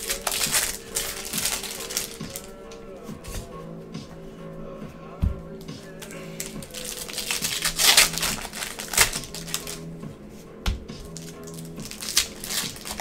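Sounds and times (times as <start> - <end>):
trading cards rustling and clacking: 0.0 - 2.6, 6.0 - 9.8, 11.1 - 13.0
background music: 0.0 - 13.0.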